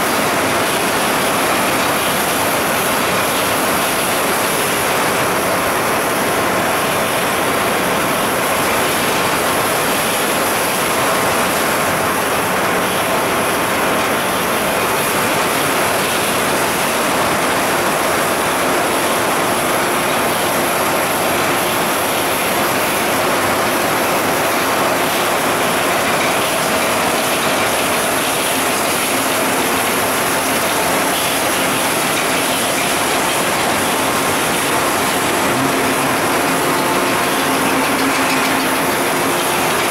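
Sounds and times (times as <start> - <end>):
machinery noise: 0.0 - 39.9
cans clattering on conveyors: 20.2 - 39.9.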